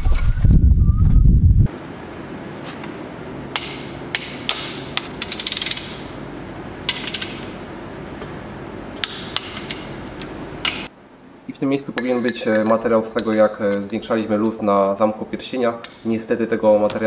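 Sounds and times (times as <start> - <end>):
steady background hum: 0.0 - 17.0
hand tools tapping metal: 12.0 - 13.8.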